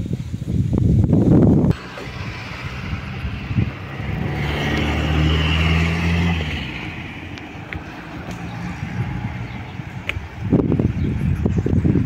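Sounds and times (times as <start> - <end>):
car driving past: 1.7 - 10.0.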